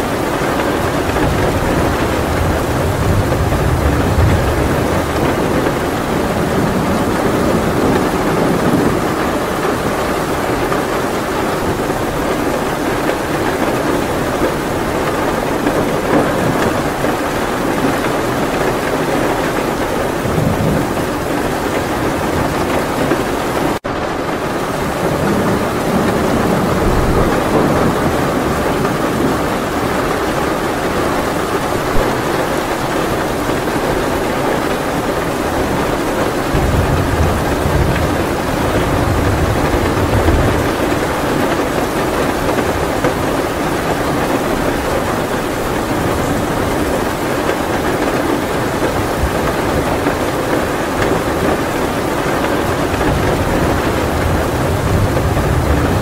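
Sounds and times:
heavy rain hiss: 0.0 - 56.0
low rumble of thunder: 0.0 - 56.0.

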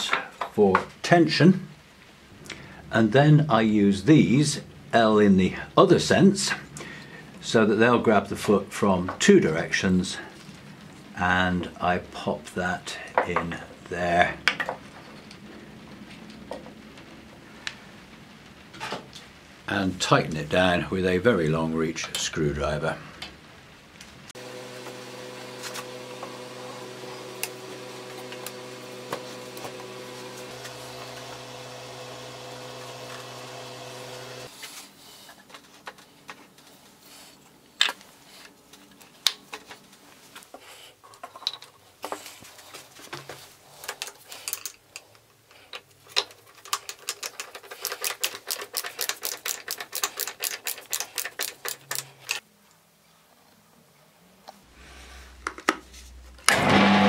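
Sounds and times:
steady motor hum: 24.4 - 34.5
rapid even clicking: 46.1 - 52.4.

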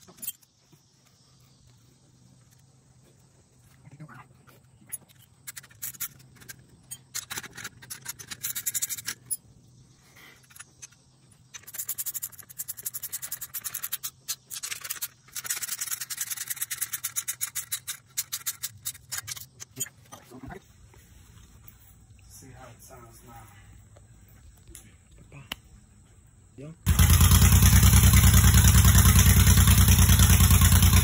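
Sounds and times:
sharp clicks and scraping on metal: 4.8 - 9.4, 10.4 - 20.0.

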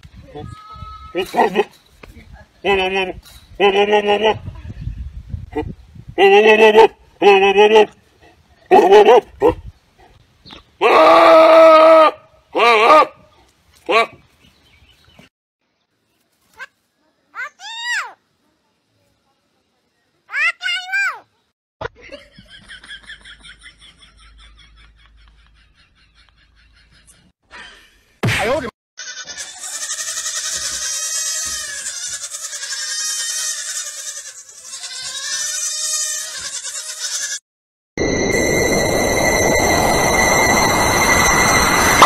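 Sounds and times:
goat bleating: 29.0 - 37.4.

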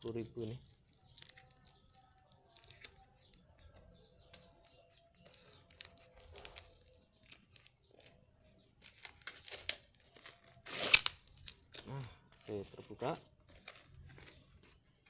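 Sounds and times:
fingernails scratching plastic tape: 0.0 - 8.1, 8.8 - 12.4
tape peeling: 0.0 - 8.2, 8.8 - 12.8.

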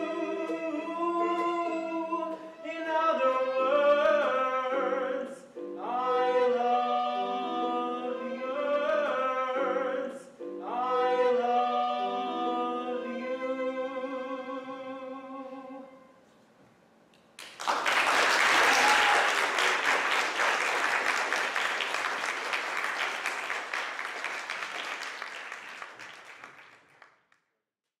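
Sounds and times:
audience applauding: 17.4 - 27.4.

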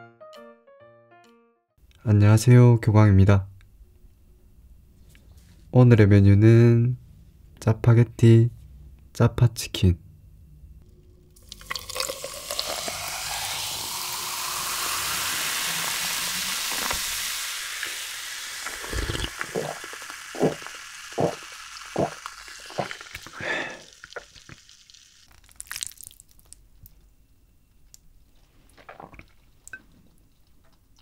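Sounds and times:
person gulping drink: 11.4 - 14.0, 18.6 - 26.6, 28.7 - 29.8
cola pouring and fizzing: 11.4 - 26.6.

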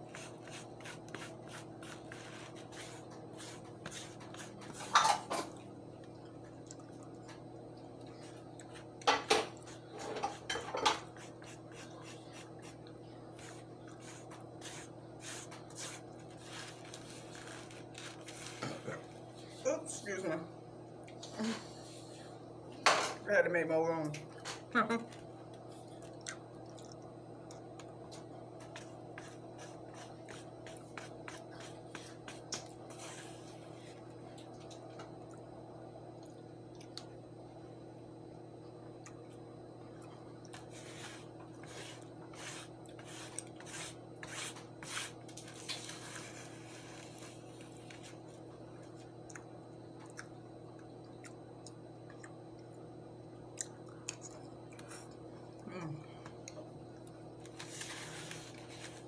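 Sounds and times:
chewing: 5.5 - 7.4, 8.0 - 9.0, 25.5 - 28.9, 49.2 - 52.7, 53.5 - 55.2.

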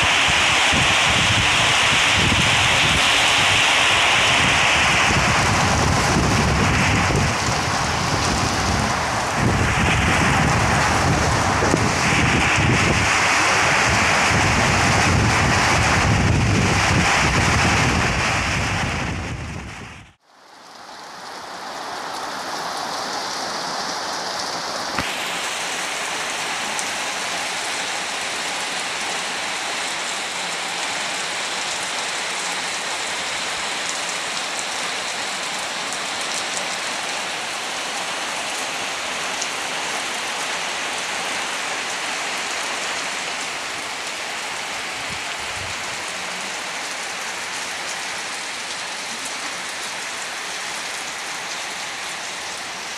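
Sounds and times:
wind rumbling on microphone: 0.0 - 20.2, 43.6 - 46.2
heavy rain on ground: 0.0 - 52.9.

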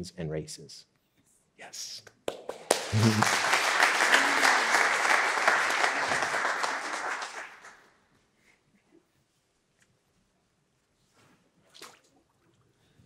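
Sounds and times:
congregation applauding: 2.3 - 7.9.

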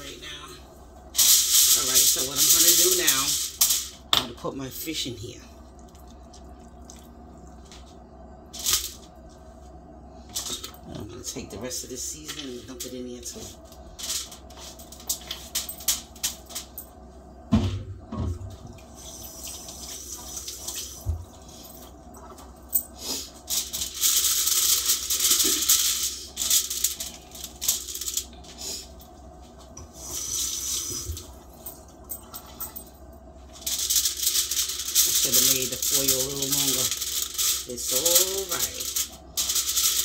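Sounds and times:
aluminium foil crinkling: 1.2 - 4.1, 12.0 - 16.8, 23.1 - 28.6, 33.4 - 40.0.

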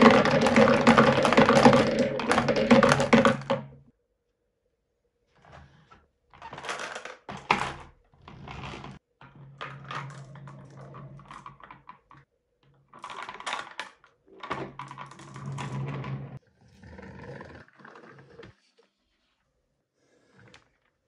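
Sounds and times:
marbles rattling in plastic: 0.0 - 3.7
toy truck wheels rolling: 0.0 - 3.7, 13.0 - 16.4.

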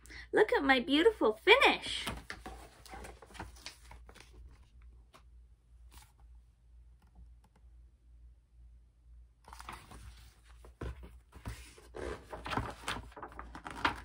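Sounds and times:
paper pages rustling: 2.0 - 6.2, 9.5 - 14.0.

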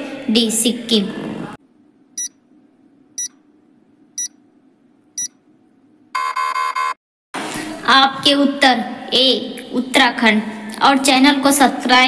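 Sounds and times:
buzzer: 6.2 - 7.0.

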